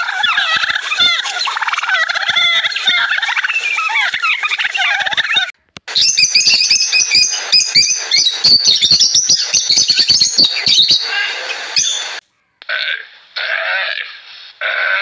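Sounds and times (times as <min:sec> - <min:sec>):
guineafowl calls: 0:00.0 - 0:13.7
macaws squawking: 0:00.0 - 0:15.0.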